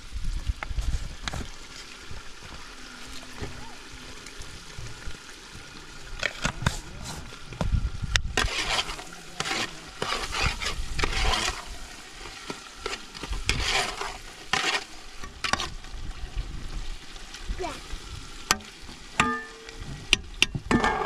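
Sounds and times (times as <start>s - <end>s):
food frying: 0.0s - 21.0s
metal spoon scraping a pot: 8.4s - 15.7s.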